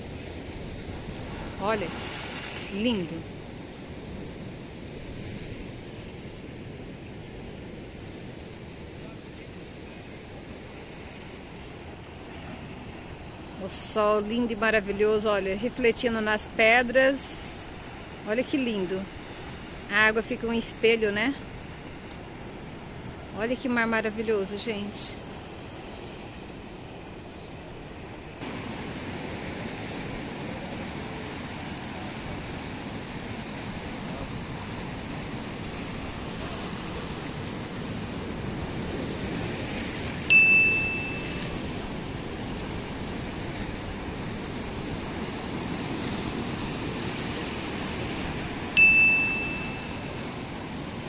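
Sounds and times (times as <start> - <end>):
surf washing over rocks: 0.0 - 51.0
bright bell-like chime: 40.3 - 41.5, 48.8 - 50.2.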